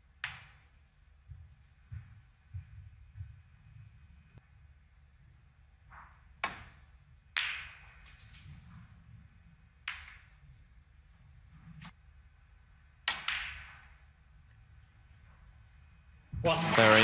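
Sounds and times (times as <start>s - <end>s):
quiet arena hush: 0.0s - 17.0s
snooker balls clacking: 9.8s - 10.4s, 13.1s - 14.0s.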